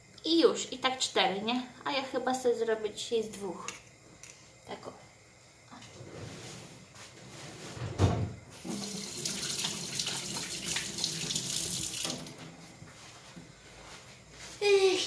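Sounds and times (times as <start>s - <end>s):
thump: 7.8s - 8.4s
tap running into a sink: 8.6s - 12.5s.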